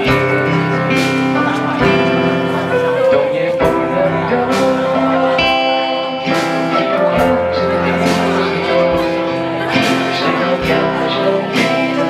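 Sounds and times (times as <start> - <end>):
acoustic guitar strumming: 0.0 - 12.0
drum kit steady beat: 0.0 - 12.0.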